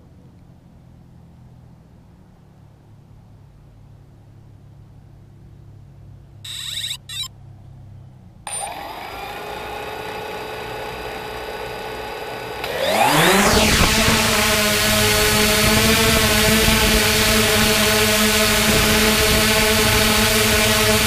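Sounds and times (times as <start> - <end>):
drone motors spinning: 6.5 - 7.3, 8.5 - 21.0
short beeps: 6.5 - 7.3.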